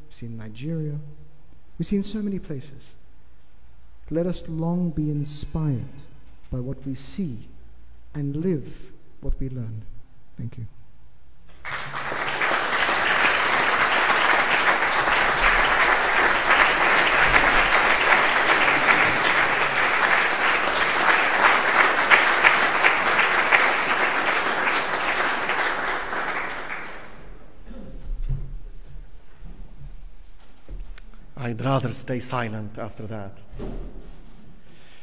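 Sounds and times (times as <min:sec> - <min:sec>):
audience applauding: 0:11.5 - 0:27.4.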